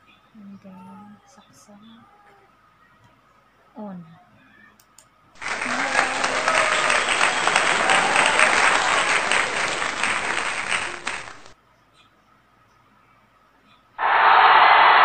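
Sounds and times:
crowd clapping: 0:05.4 - 0:11.6, 0:14.0 - 0:15.0.

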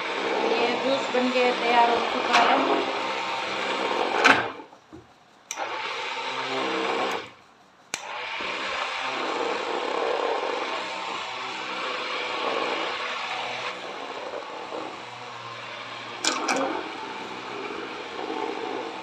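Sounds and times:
hand blender motor hum: 0:00.0 - 0:04.6, 0:05.6 - 0:07.4, 0:08.0 - 0:19.0.

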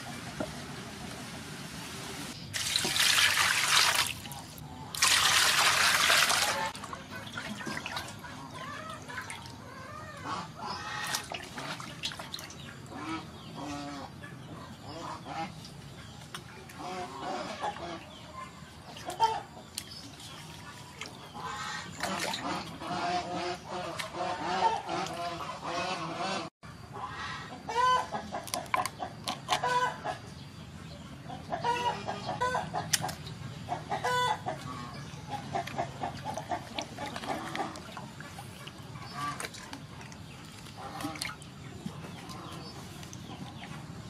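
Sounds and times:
water splashing in metal basin: 0:02.5 - 0:08.3, 0:11.0 - 0:12.7, 0:21.9 - 0:22.8, 0:35.6 - 0:41.6
poultry clucking: 0:06.4 - 0:11.9, 0:12.8 - 0:19.7, 0:21.3 - 0:44.0.

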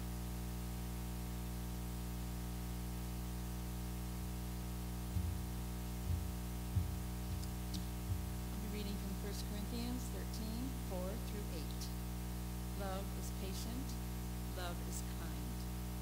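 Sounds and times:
electrical hum: 0:00.0 - 0:16.0
footsteps thumping: 0:05.0 - 0:08.6.

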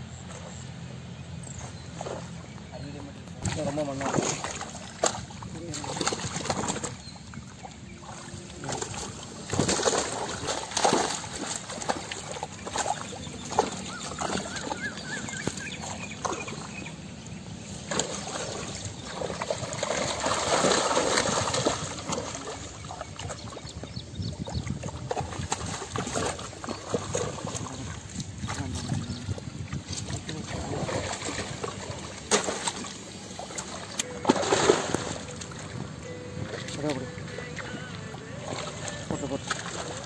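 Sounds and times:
muddy water splashing and sloshing: 0:00.0 - 0:40.0
fish thrashing at surface: 0:03.4 - 0:07.1, 0:08.0 - 0:16.7, 0:17.8 - 0:23.3, 0:30.0 - 0:40.0.

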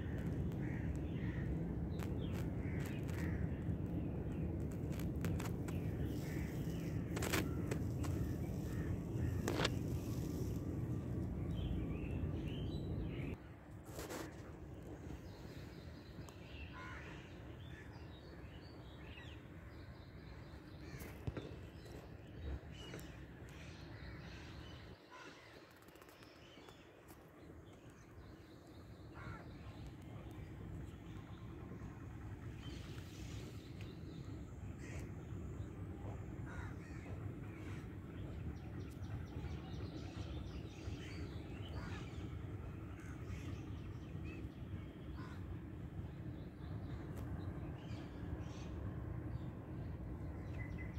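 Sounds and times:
low steady rumbling: 0:00.0 - 0:13.7, 0:26.7 - 0:50.9
low background noise: 0:00.0 - 0:50.9
crows cawing: 0:36.5 - 0:37.0.

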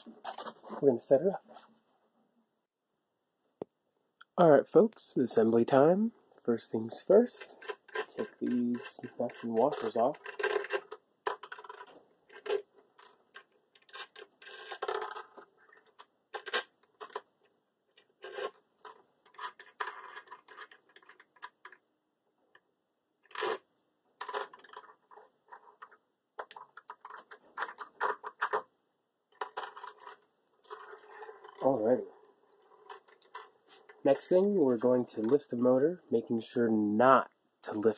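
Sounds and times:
metal nuts and washers clinking: 0:29.3 - 0:35.5.

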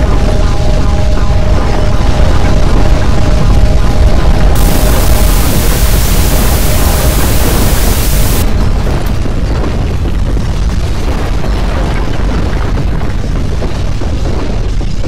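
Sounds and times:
hiss: 0:04.6 - 0:08.4.

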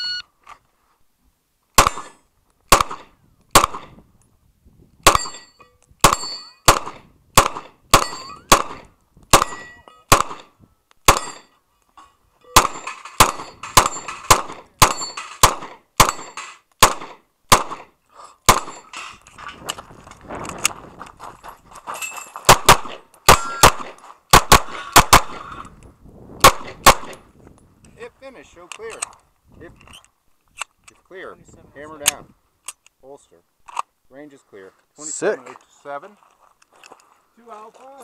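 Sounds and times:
rapid pistol fire: 0:02.7 - 0:03.9, 0:06.0 - 0:10.5, 0:12.6 - 0:17.9, 0:22.5 - 0:25.5, 0:26.4 - 0:27.2
steel targets clanging: 0:05.1 - 0:06.7, 0:11.1 - 0:16.6.

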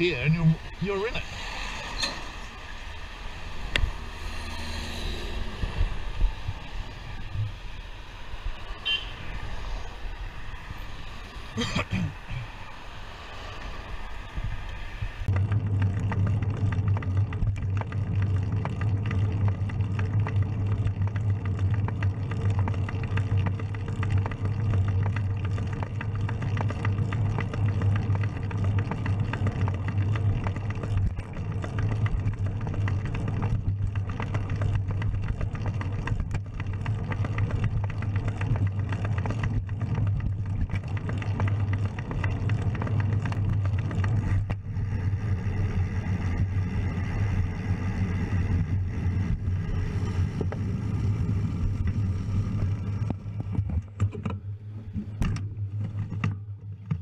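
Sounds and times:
road noise: 0:00.0 - 0:57.0
wind rumble: 0:00.0 - 0:57.0.

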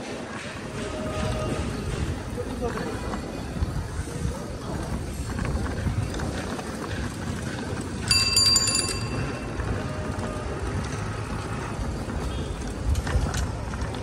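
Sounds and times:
wheels rumbling on road: 0:00.0 - 0:14.0
wind on microphone: 0:00.4 - 0:08.3
rickshaw bell ringing: 0:08.0 - 0:10.7.

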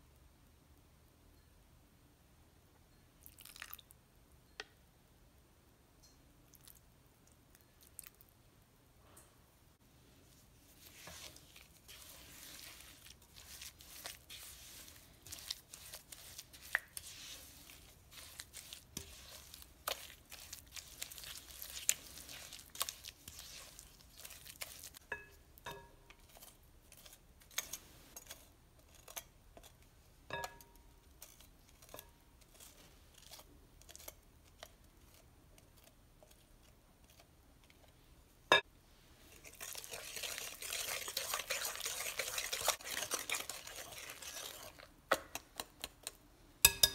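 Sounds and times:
spatula scraping dough in bowl: 0:10.2 - 0:29.8, 0:39.3 - 0:46.2
wire whisk beating dough: 0:10.7 - 0:25.0, 0:39.4 - 0:46.9
spatula clink against glass bowl: 0:25.0 - 0:26.1, 0:46.6 - 0:46.9.

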